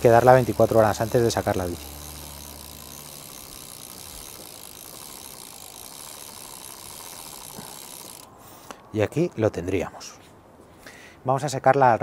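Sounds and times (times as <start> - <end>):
freewheel ticking: 0.0 - 8.3
bicycle chain running over cogs: 0.0 - 8.6.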